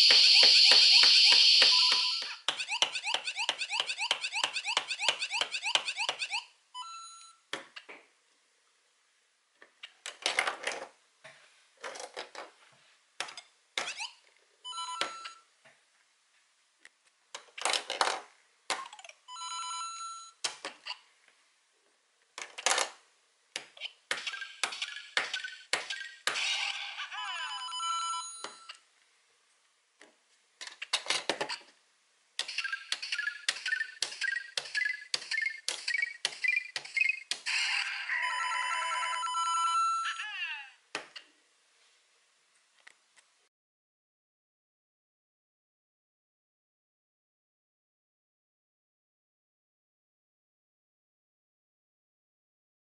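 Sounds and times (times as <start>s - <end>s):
electronic game sound effects: 0.0s - 6.5s.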